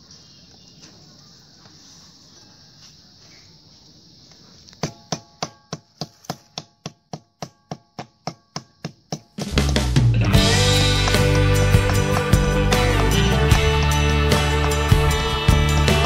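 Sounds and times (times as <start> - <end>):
knife chopping meat and bone: 4.8 - 9.4.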